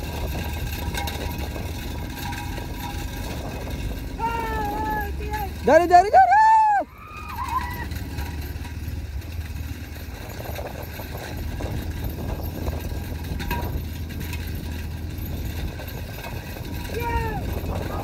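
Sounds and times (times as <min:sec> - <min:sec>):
motorcycle engine running: 0:00.0 - 0:18.0
person shouting: 0:04.2 - 0:07.9, 0:16.9 - 0:17.5.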